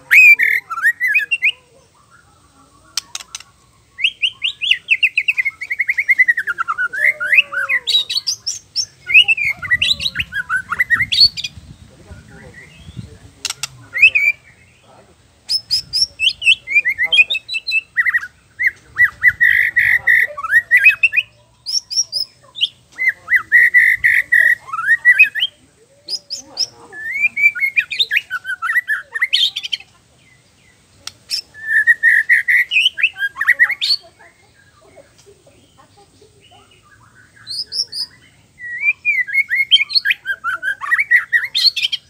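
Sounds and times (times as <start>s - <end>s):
bird singing whistled phrases: 0.0s - 2.2s, 3.0s - 11.5s, 15.5s - 29.8s, 31.0s - 34.0s, 36.7s - 42.0s.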